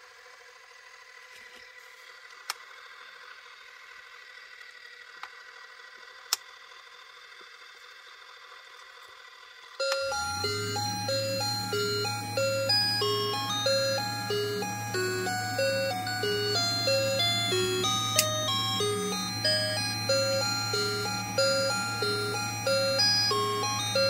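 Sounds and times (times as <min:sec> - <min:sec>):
low electric hum: 0:00.0 - 0:24.0
chiming electronic melody: 0:09.8 - 0:24.0.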